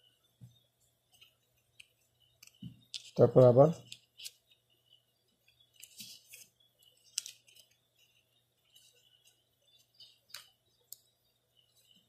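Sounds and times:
paper rustling and crinkling: 0:05.7 - 0:09.4.

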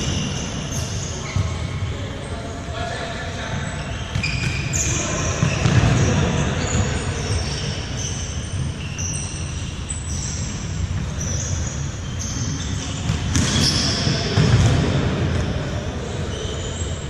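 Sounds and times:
shoes squeaking on floor: 0:00.0 - 0:01.8, 0:03.6 - 0:17.0
ball kicked and bouncing: 0:13.0 - 0:15.5.

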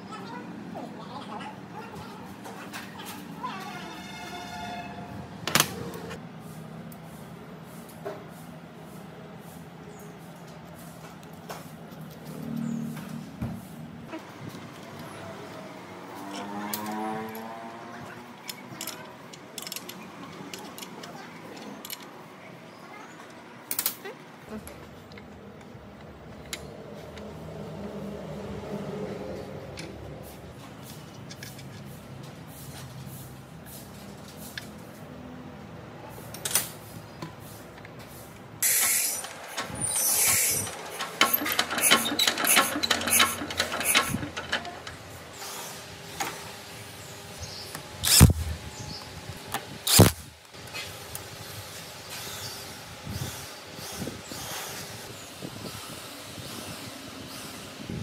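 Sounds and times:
pneumatic wrench bursts: 0:38.6 - 0:45.8, 0:48.0 - 0:48.5, 0:49.8 - 0:50.3
spanner clinking on metal: 0:39.6 - 0:45.1.

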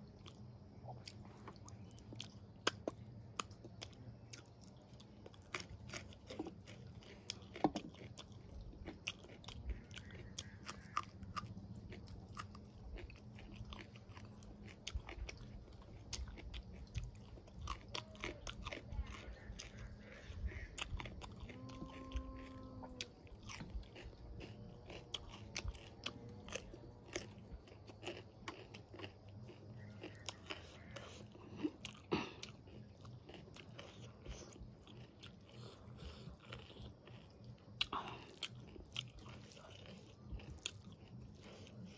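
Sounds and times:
chewing and crunching food: 0:00.0 - 0:41.9
hummed tone: 0:21.2 - 0:23.3.

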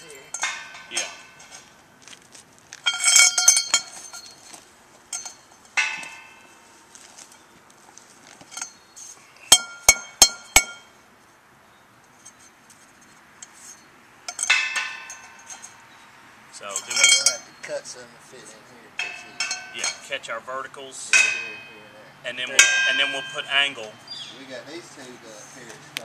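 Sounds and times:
sharp metal strikes: 0:00.0 - 0:01.7, 0:05.1 - 0:06.8, 0:14.3 - 0:15.8, 0:19.0 - 0:20.2, 0:21.1 - 0:21.9, 0:22.5 - 0:24.0
steel pieces clanking: 0:00.0 - 0:01.8, 0:02.8 - 0:07.4, 0:12.1 - 0:15.8, 0:16.6 - 0:17.5, 0:19.0 - 0:20.1.

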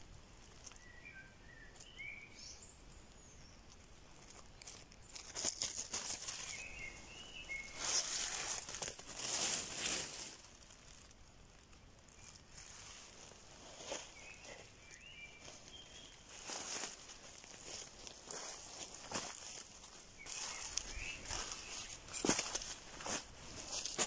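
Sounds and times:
dry leaves and twigs rustling: 0:00.0 - 0:24.0.

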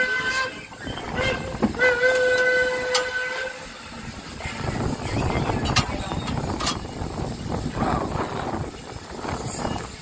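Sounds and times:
steam locomotive whistle: 0:00.0 - 0:03.8.

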